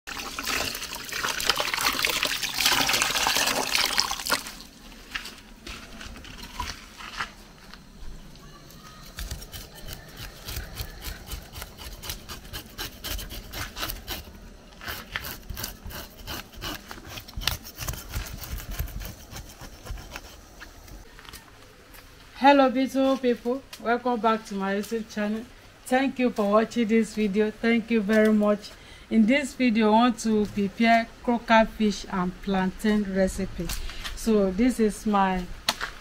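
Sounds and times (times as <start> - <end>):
water running from tap: 0.1 - 4.6
knife scraping fish scales: 9.1 - 20.6.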